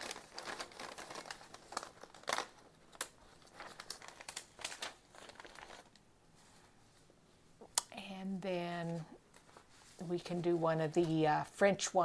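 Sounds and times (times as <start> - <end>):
paper rustling: 0.0 - 6.7, 9.3 - 11.2.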